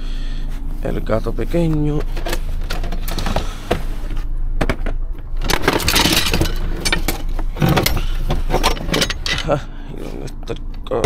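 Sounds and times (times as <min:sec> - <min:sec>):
metal tools clattering: 0:04.8 - 0:09.7.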